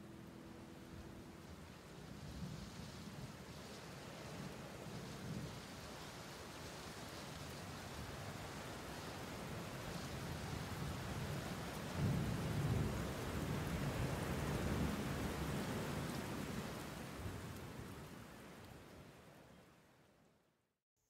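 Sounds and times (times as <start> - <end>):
steady rain hiss: 0.0 - 20.1
thunder rumbling: 10.3 - 17.9.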